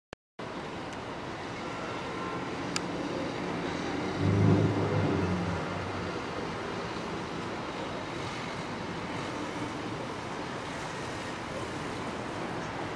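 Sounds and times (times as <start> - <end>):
city traffic noise: 0.4 - 12.9
loud low drone: 3.9 - 6.5.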